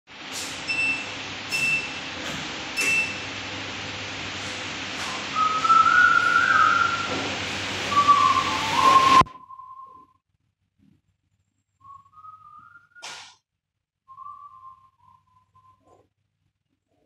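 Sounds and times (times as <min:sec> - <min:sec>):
person whistling: 0:05.0 - 0:07.1, 0:07.9 - 0:10.2, 0:11.8 - 0:13.1, 0:14.1 - 0:15.9.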